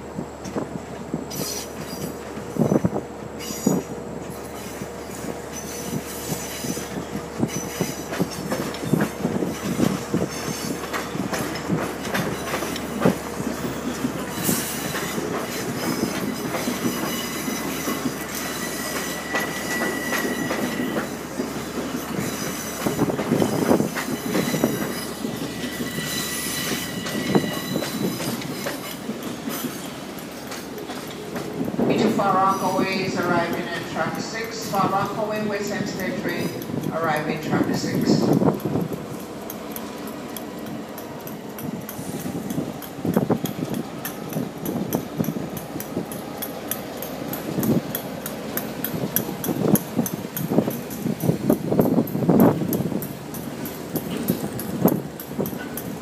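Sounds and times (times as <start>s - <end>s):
train wheels clicking over rail joints: 0.0s - 56.0s
high wheel squeal: 1.3s - 9.0s, 10.3s - 10.8s, 13.4s - 21.4s, 22.0s - 30.0s.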